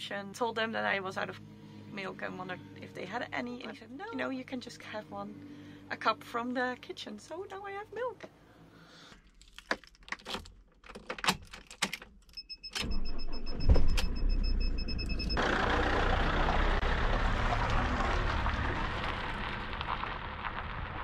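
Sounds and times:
keys jangling in ignition: 0:09.5 - 0:12.9
high pulsing beep: 0:12.4 - 0:15.4
engine cranking and running: 0:14.8 - 0:21.0.

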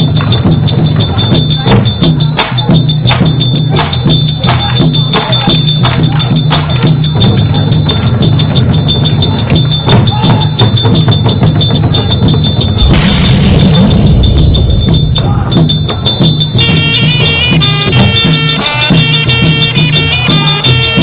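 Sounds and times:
sharp percussion strikes: 0:00.0 - 0:21.0
held high tone: 0:08.8 - 0:18.9
low drone: 0:12.8 - 0:16.5.

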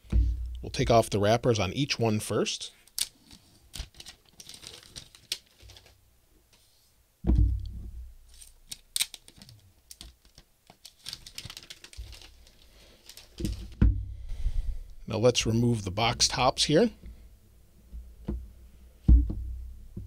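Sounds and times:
plastic wrap crinkling and tearing: 0:03.0 - 0:06.0, 0:08.3 - 0:13.8
box thumping on table: 0:07.3 - 0:07.8.

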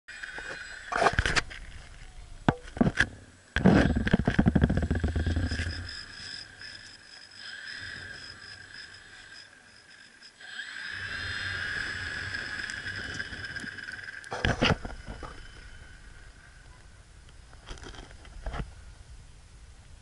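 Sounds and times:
model airplane motor whine: 0:03.6 - 0:18.3.

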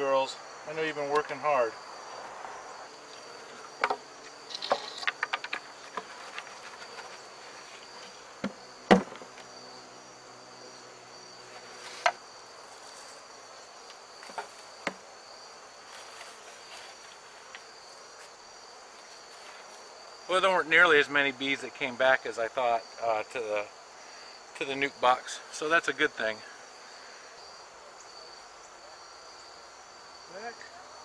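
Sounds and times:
crickets chirring: 0:00.0 - 0:31.0
bees buzzing: 0:00.4 - 0:20.3
wooden hive boxes knocking: 0:03.3 - 0:09.5, 0:14.2 - 0:15.1.

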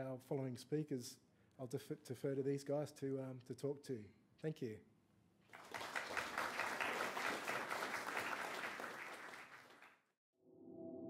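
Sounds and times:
audience applauding: 0:05.5 - 0:10.1.

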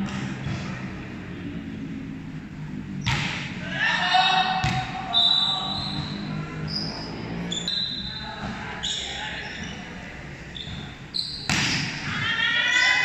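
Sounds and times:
players' voices: 0:03.4 - 0:13.0
volleyball being struck: 0:04.6 - 0:05.0, 0:11.4 - 0:12.0
shoes squeaking on court: 0:05.2 - 0:12.0.

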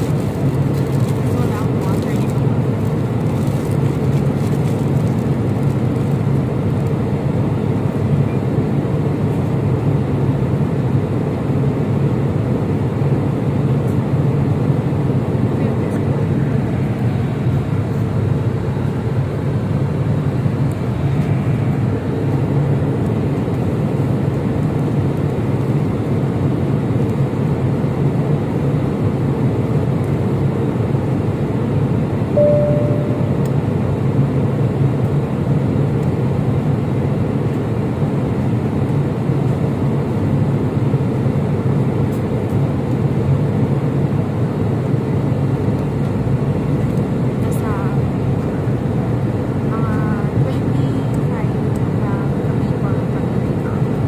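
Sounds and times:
airliner cabin drone: 0:00.0 - 0:54.0
faint brief tone: 0:32.4 - 0:33.5.

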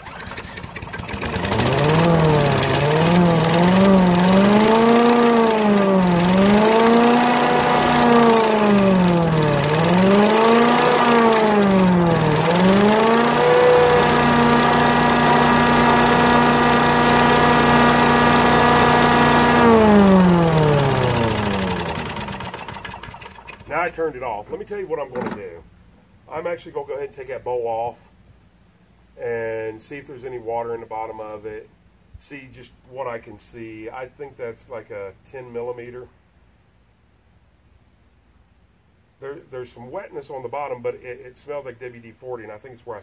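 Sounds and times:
small engine running and surging: 0:00.0 - 0:23.7.

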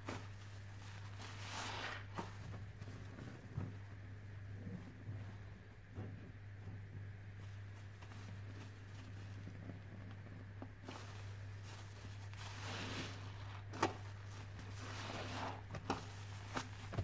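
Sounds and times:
sponge squelching in foam: 0:00.0 - 0:03.1, 0:10.8 - 0:17.0.

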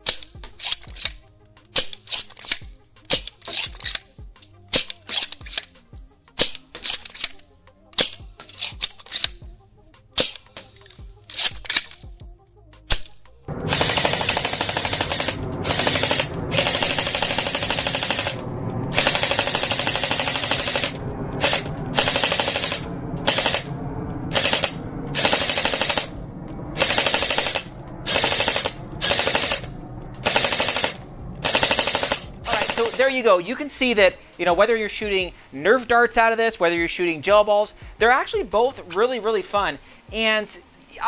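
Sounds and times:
gel ball blaster firing bursts: 0:13.5 - 0:23.7, 0:24.3 - 0:26.1, 0:26.8 - 0:33.2.

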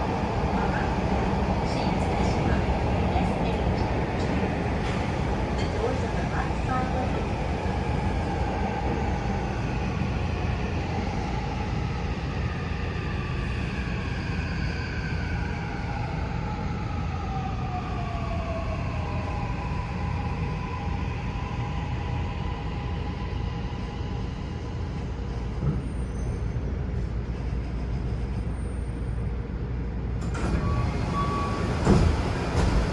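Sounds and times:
subway train rumbling: 0:00.0 - 0:32.9
train wheels rumbling: 0:30.2 - 0:32.9.

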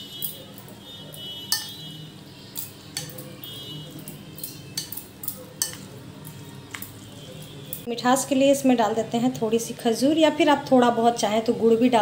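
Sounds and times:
spoon clinking against bowl: 0:00.0 - 0:07.9.

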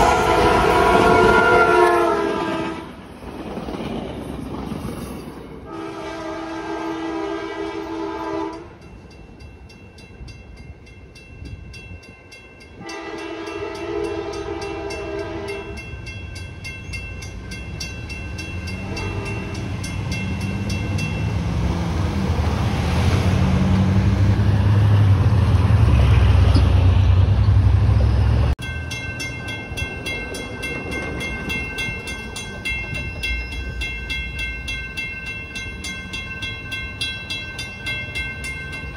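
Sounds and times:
crossing bells ringing: 0:00.0 - 0:02.1, 0:07.8 - 0:21.6, 0:28.2 - 0:38.9
train horn blasts: 0:00.0 - 0:03.0, 0:05.6 - 0:08.8, 0:12.8 - 0:15.9, 0:18.7 - 0:19.8.

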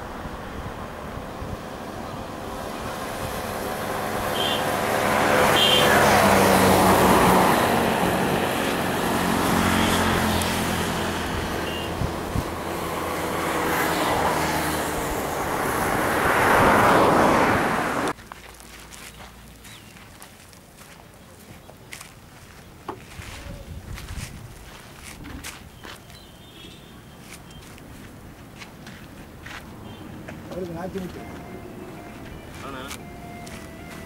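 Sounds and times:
vehicles driving past: 0:00.0 - 0:23.3, 0:24.1 - 0:34.0.

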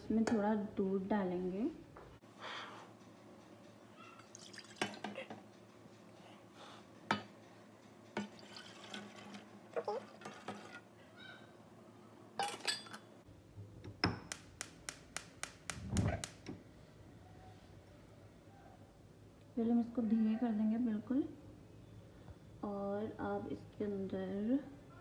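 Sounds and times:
milk pouring: 0:04.2 - 0:05.1, 0:08.2 - 0:10.8
pans clinking: 0:07.0 - 0:10.9, 0:12.4 - 0:13.1.

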